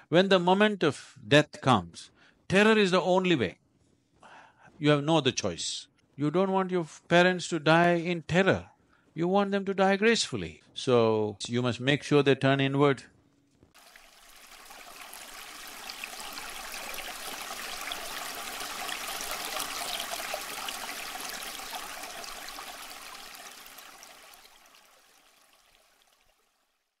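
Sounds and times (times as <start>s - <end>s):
rushing splashing water: 13.8s - 26.5s.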